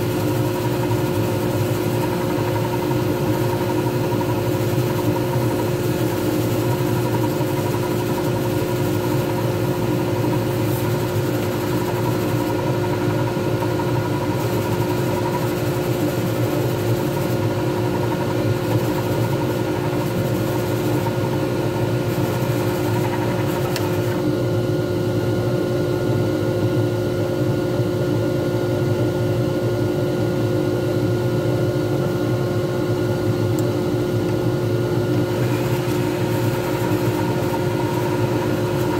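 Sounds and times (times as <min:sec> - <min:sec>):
sanding pad rubbing with hiss: 0:00.0 - 0:12.7, 0:14.2 - 0:24.2, 0:35.2 - 0:38.9
lathe motor whine and hum: 0:00.0 - 0:38.9.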